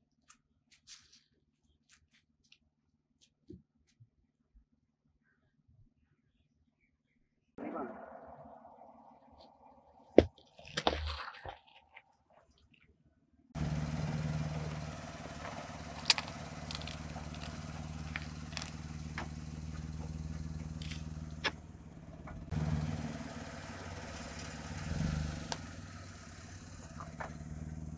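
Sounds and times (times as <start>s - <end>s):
car engine running: 13.6s - 27.9s
plastic cracking and popping: 16.0s - 19.3s.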